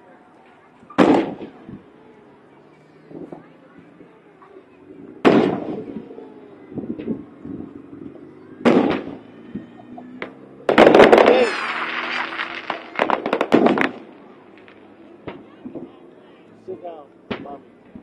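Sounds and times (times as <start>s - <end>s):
firework bangs: 0.9s - 1.8s, 5.2s - 7.7s, 8.6s - 16.0s
firework crackling: 1.0s - 1.8s, 8.6s - 9.3s, 10.7s - 15.0s.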